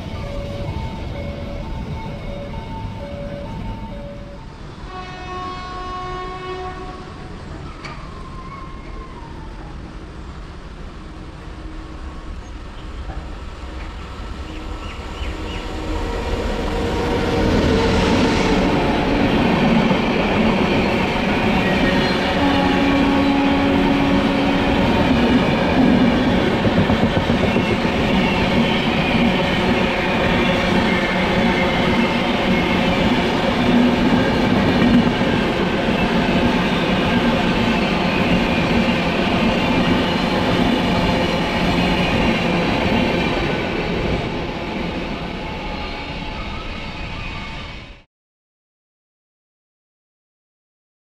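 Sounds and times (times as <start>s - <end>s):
train horn: 4.8s - 7.5s, 20.9s - 25.8s
train wheels on rails: 7.2s - 9.7s, 11.2s - 47.5s.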